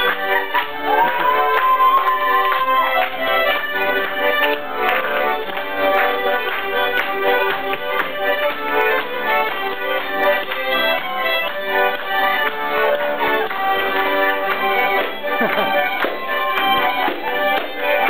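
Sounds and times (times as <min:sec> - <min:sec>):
piano accordion playing a tune: 0:00.0 - 0:18.0.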